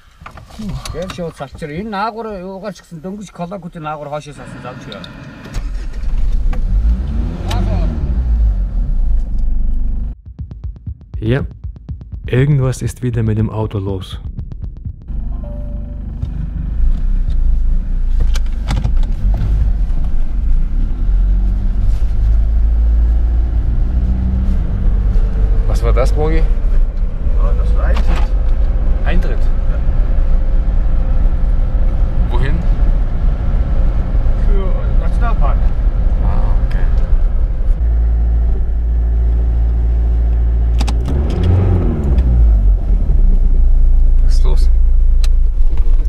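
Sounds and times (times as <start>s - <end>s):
man talking: 11.2s - 11.6s, 12.2s - 14.3s
diesel engine running: 14.2s - 18.6s, 24.7s - 44.1s.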